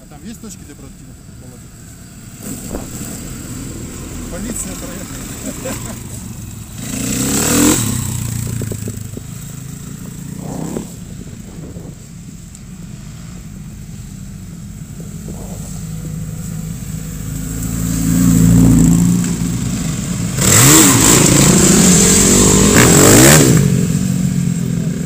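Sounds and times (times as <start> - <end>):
dirt bikes riding past: 0.0 - 25.0.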